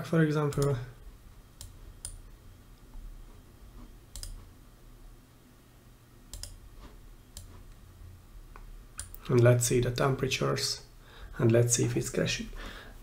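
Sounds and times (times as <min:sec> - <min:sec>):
computer mouse clicks: 0:00.5 - 0:00.8, 0:01.6 - 0:02.3, 0:04.1 - 0:04.5, 0:06.3 - 0:06.6, 0:07.3 - 0:07.8, 0:08.6 - 0:09.4.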